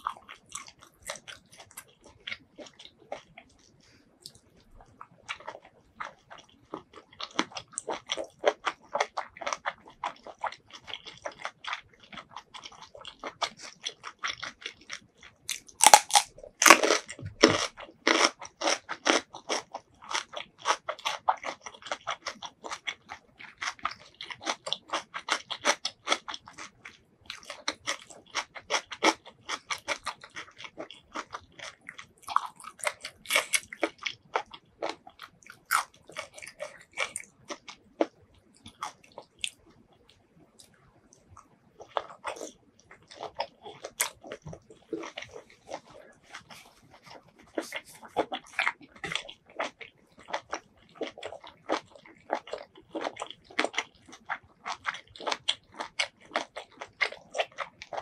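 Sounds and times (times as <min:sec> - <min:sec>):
crunchy wet chewing: 0:00.0 - 0:58.0.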